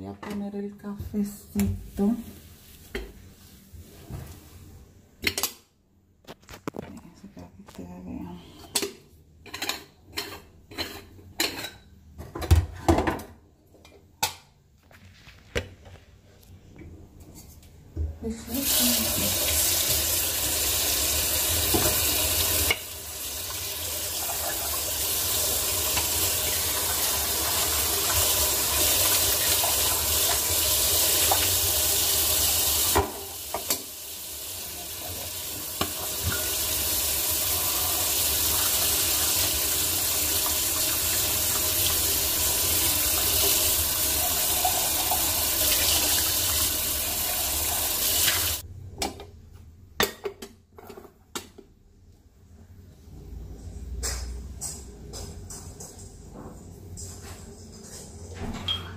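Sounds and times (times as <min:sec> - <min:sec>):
tap water running into sink: 0:18.6 - 0:48.6.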